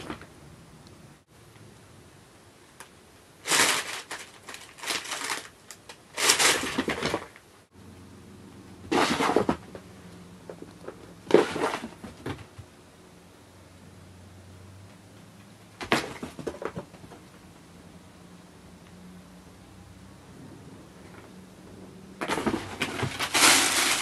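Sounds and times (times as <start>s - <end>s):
plastic bag crinkling: 3.4s - 7.4s, 22.3s - 24.0s.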